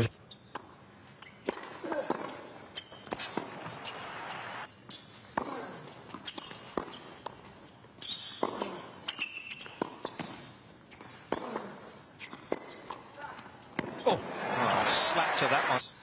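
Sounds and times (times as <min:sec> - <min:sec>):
shoe squeaks: 0:00.0 - 0:00.5, 0:01.1 - 0:01.5, 0:02.7 - 0:04.2, 0:06.1 - 0:07.2, 0:08.0 - 0:11.3, 0:12.1 - 0:13.0
tennis ball hitting rackets: 0:08.3 - 0:10.4.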